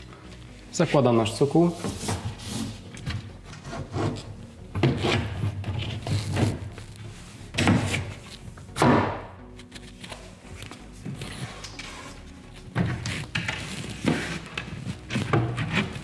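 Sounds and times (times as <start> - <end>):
board knocking and scraping: 1.8 - 6.6, 12.8 - 16.0.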